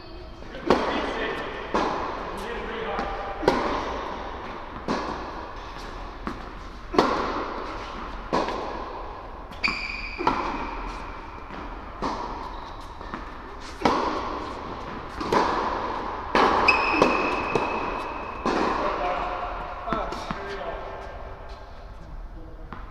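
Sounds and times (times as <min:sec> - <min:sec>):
tennis ball strikes and bounces: 0:00.6 - 0:19.3
shoes squeaking on court: 0:09.5 - 0:15.7, 0:16.4 - 0:21.7.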